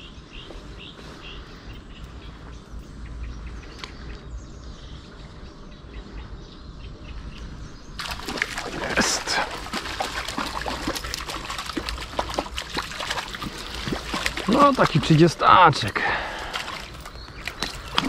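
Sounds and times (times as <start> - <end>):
small birds chirping: 0.0 - 18.0
fish splashing: 8.0 - 18.0
river water rushing: 8.0 - 18.0.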